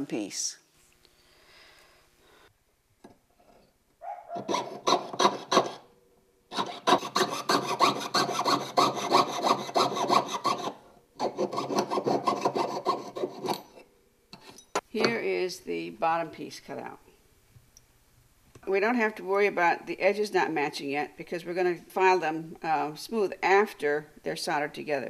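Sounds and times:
saw rasping through metal: 0:04.4 - 0:05.8, 0:06.5 - 0:13.7.

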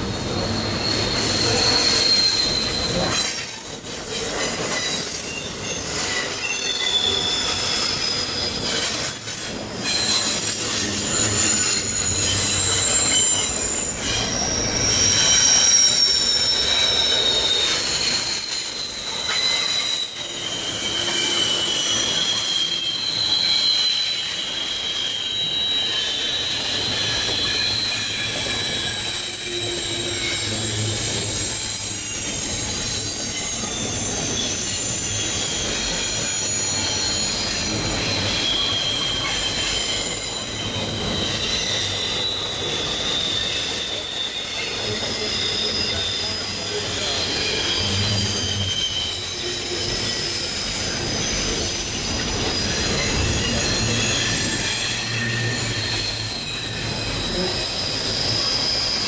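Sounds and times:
train wheels rumbling: 0:00.0 - 0:59.0
train wheels squealing: 0:00.0 - 0:59.0.

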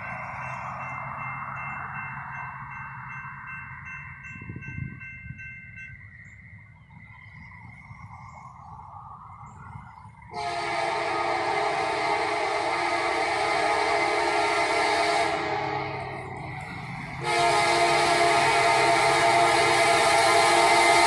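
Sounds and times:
faint steady tones: 0:00.0 - 0:21.0
train air horn chord: 0:10.3 - 0:16.4, 0:17.1 - 0:21.0.

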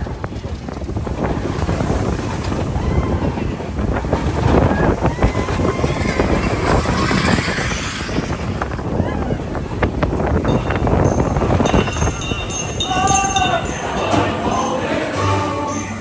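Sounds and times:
wind buffeting microphone: 0:00.0 - 0:15.1
roller coaster wheels rumbling: 0:00.0 - 0:16.0
riders shouting: 0:12.3 - 0:15.2.

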